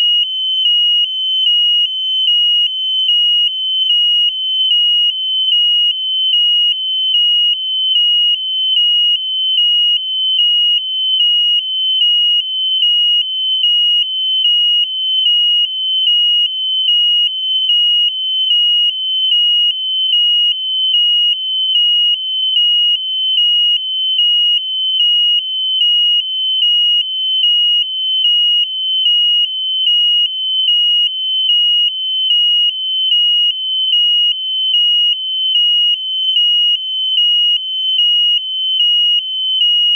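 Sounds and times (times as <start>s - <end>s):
piezo buzzer high-pitched tone: 0.0s - 17.0s.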